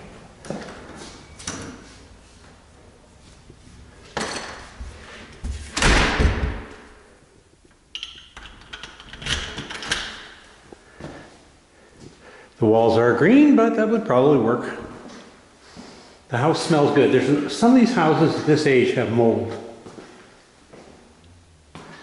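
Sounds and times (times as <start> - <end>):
front door thudding shut: 5.7 - 6.8.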